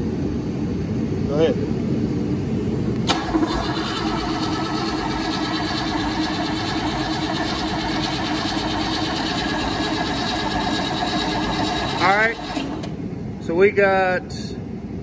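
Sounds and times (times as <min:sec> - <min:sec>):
engine cranking on starter motor: 0:03.0 - 0:13.0.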